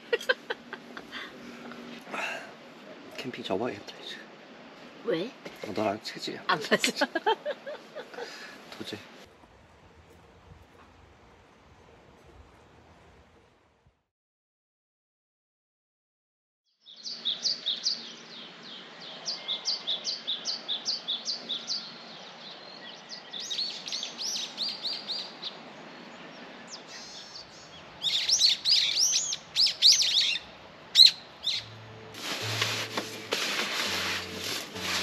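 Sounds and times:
songbirds chirping: 16.7 - 32.1.

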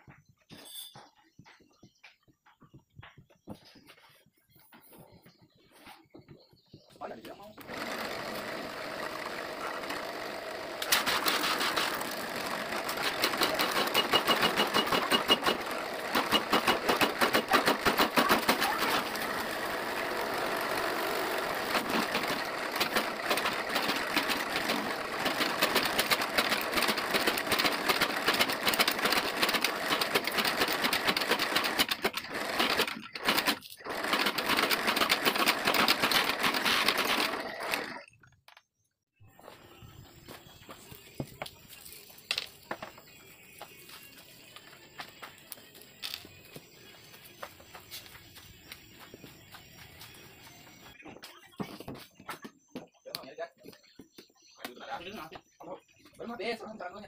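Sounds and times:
drill press boring into wood: 7.6 - 38.1.

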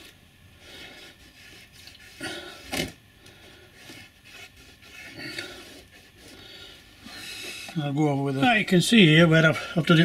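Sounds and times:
cloth rubbing on metal rails: 3.8 - 8.7.

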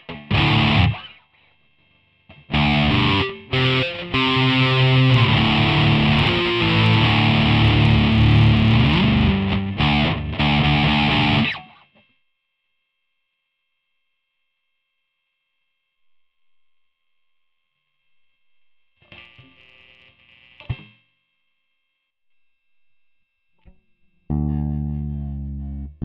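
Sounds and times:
distorted electric guitar chords: 0.0 - 1.3, 2.1 - 12.1, 19.0 - 21.0, 23.6 - 26.0.

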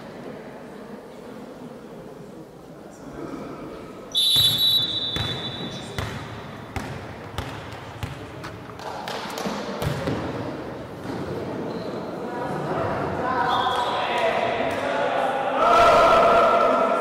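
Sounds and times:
referee's whistle: 4.1 - 6.0
volleyball thudding: 4.4 - 10.3.

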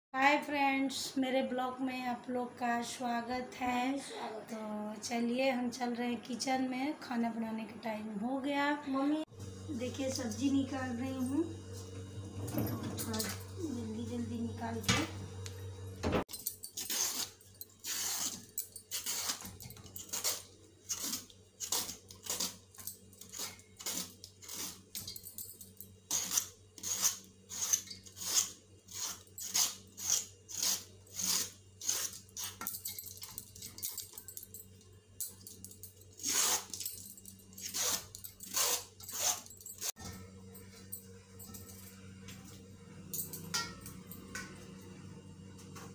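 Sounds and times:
knife scraping vegetable skin: 16.8 - 22.6, 23.2 - 24.9, 26.1 - 32.6, 36.2 - 36.8, 37.6 - 39.5.

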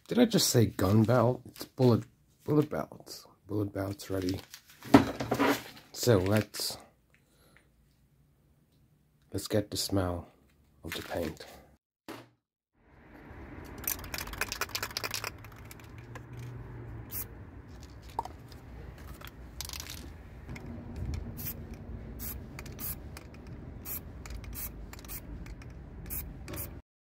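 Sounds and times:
aerosol spray can hissing: 21.0 - 26.8.

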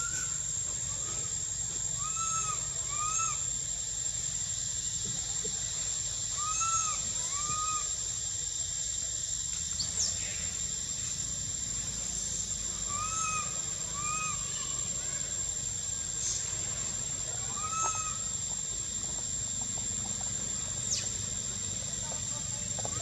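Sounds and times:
monkey coo calls: 2.0 - 3.6, 6.1 - 8.0, 12.8 - 14.9, 17.4 - 18.4.

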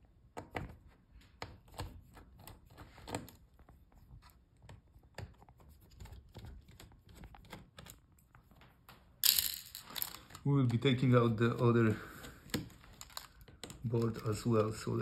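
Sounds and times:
parts handled: 4.7 - 15.0.

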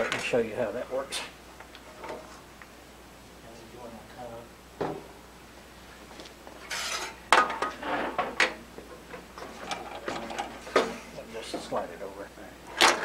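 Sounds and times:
metal clinking and rubbing: 6.6 - 7.2
metal scraping on saw top: 6.7 - 7.2.

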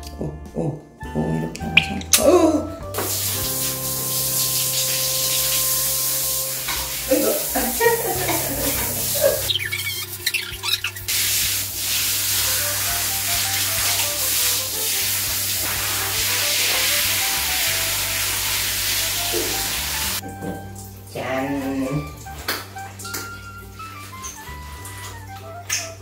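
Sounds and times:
light background music: 0.0 - 26.0
shower head spraying water: 2.9 - 20.2.

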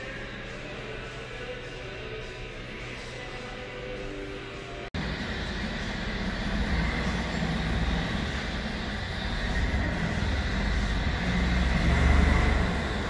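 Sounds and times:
metal lathe gears running: 5.0 - 13.0.

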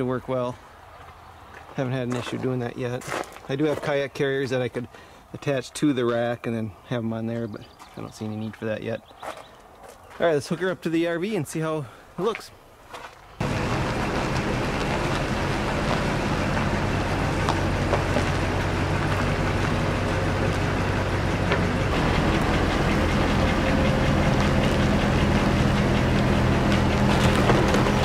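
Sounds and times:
pickup truck engine running: 13.4 - 28.0.

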